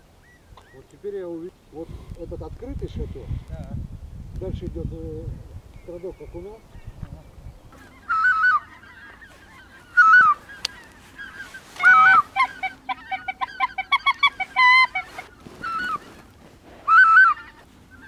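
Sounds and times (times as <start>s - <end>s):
geese calling: 7.7s - 18.0s.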